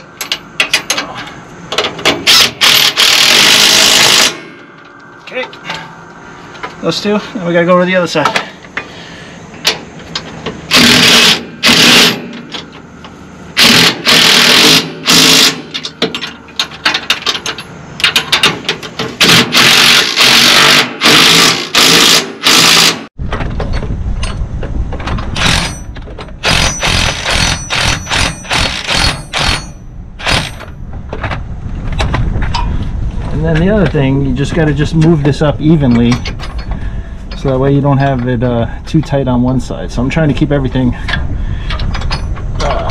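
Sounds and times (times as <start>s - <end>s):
impact wrench bursts: 2.2s - 4.4s, 10.7s - 12.4s, 13.6s - 16.2s, 19.2s - 23.1s, 25.4s - 30.7s
steady low rumble: 23.1s - 42.9s.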